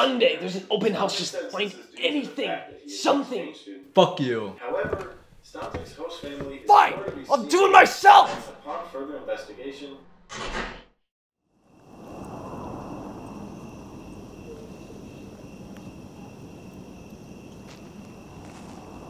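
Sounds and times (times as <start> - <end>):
insects trilling: 11.5 - 19.0.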